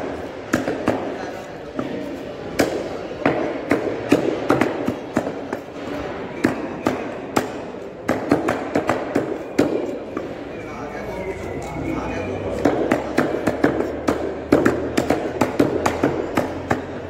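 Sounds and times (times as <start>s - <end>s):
cleaver chopping on wooden block: 12.6s - 17.0s.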